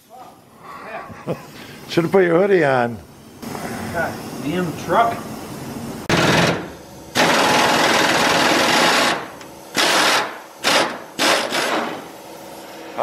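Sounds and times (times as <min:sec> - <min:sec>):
pneumatic impact wrench hammering: 0:06.1 - 0:12.2.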